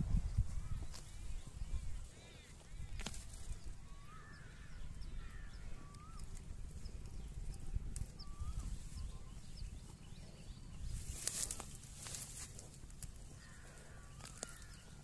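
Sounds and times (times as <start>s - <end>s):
bird chirping: 0.2s - 15.0s
cow ripping grass: 10.9s - 13.4s.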